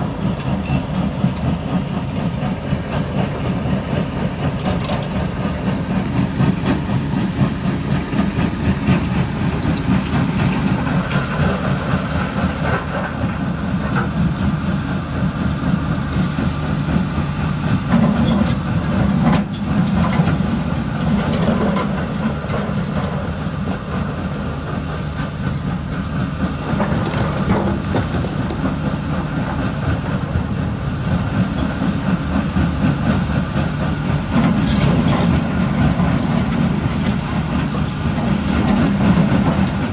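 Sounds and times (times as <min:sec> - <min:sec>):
diesel engines rumbling: 0:00.0 - 0:39.9
rock crusher grinding and clattering: 0:26.6 - 0:28.7.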